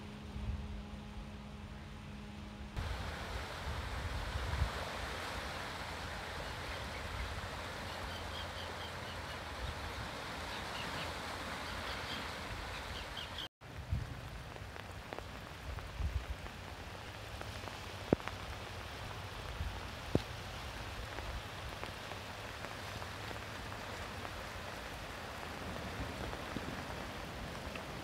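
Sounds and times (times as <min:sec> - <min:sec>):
small waves washing around rocks: 0:20.1 - 0:28.0.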